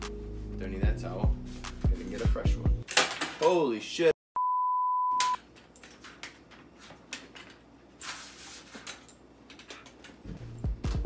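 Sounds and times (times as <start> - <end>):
electronic beep: 4.4 - 5.4.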